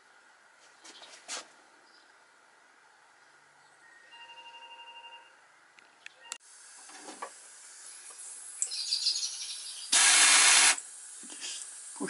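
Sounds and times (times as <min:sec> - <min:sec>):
compressed air hissing: 0:09.9 - 0:12.0.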